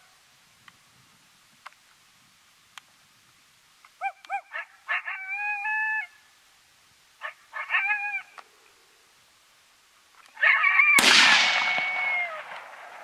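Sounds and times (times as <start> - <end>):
coyote barking: 4.0 - 6.1, 7.2 - 8.4, 10.4 - 11.0
coyote howling: 4.0 - 6.2, 7.2 - 8.4, 10.4 - 12.6.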